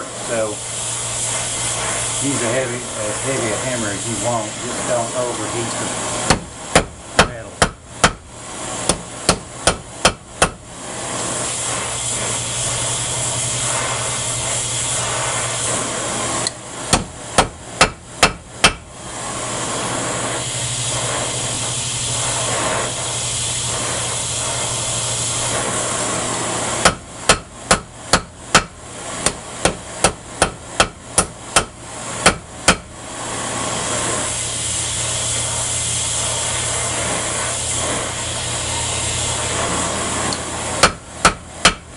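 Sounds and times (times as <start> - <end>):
cutting torch flame rushing: 0.0 - 41.8
hammer striking metal on anvil: 8.9 - 10.6, 16.9 - 18.8, 26.8 - 32.9, 40.8 - 41.9.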